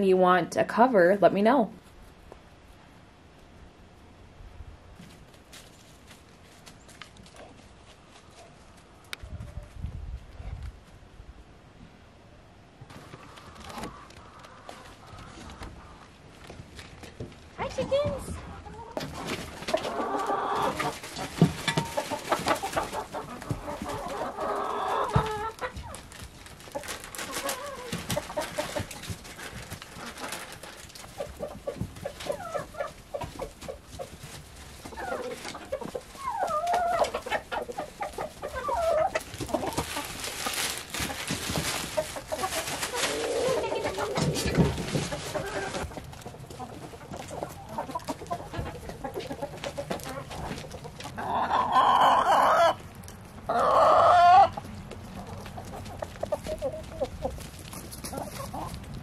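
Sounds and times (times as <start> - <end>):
chickens clucking: 12.8 - 59.0.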